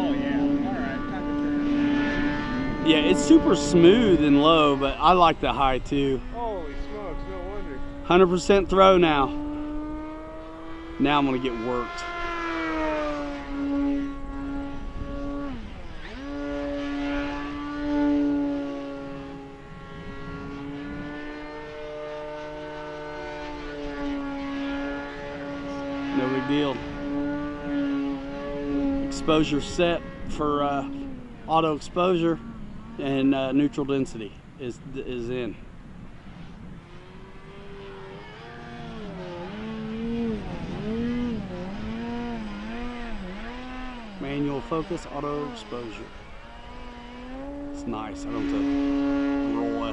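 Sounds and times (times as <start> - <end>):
low wind rumble: 0.0 - 49.9
model plane motor humming: 12.0 - 28.8, 36.5 - 49.9.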